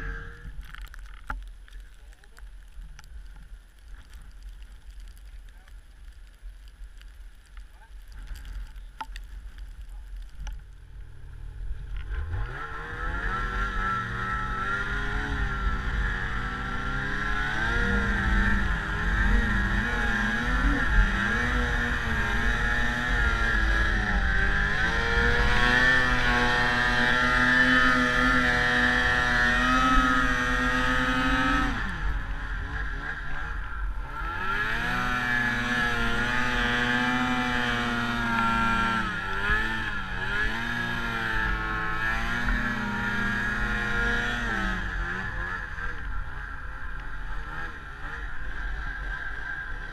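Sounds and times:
snowmobile engine revving: 0.0 - 0.5, 12.0 - 49.9.

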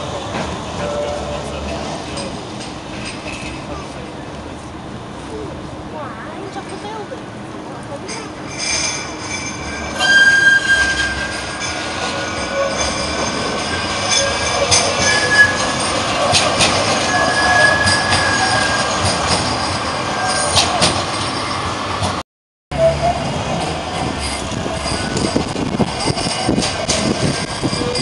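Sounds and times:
trams running on track: 0.0 - 28.0
high-pitched squealing tones: 8.4 - 21.8.

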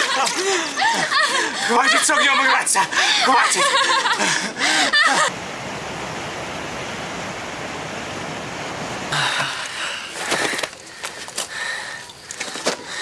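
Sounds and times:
woman laughing: 0.0 - 5.3.

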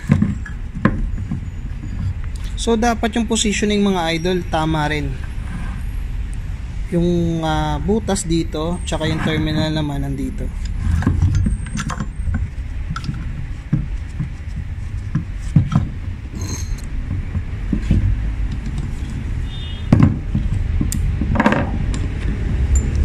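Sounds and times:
low rumble: 0.0 - 23.0
metal scrape: 4.2 - 6.1, 8.6 - 12.7, 16.2 - 16.9
metal clicks and knocks: 10.6 - 19.3, 19.9 - 23.0.

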